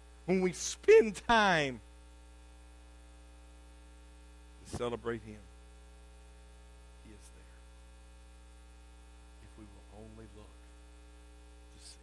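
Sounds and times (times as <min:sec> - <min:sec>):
electrical mains hum: 0:00.0 - 0:12.0.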